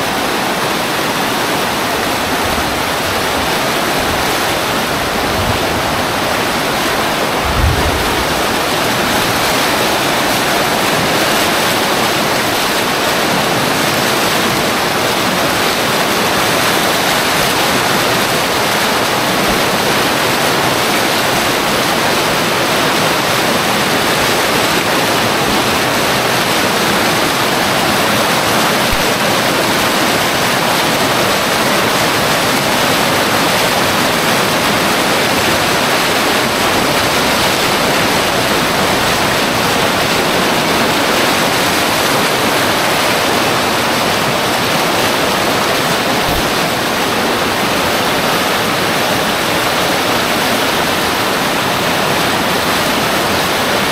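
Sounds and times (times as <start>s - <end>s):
floodwater rushing: 0.0s - 53.9s
low thump: 7.2s - 10.0s.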